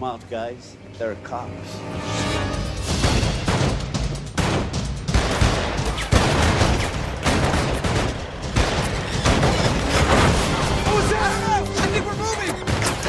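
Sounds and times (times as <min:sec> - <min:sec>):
gunshots in rapid barrage: 0:02.9 - 0:10.8.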